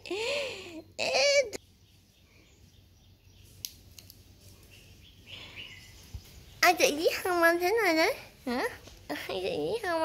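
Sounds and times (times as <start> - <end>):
high-pitched wordless voice: 1.0 - 1.6, 6.6 - 10.0.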